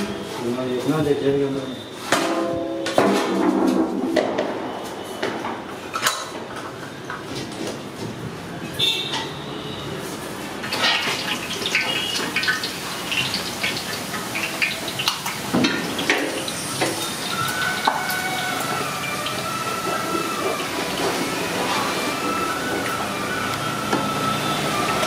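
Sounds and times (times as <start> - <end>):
dough frying in sizzling oil: 10.0 - 25.0.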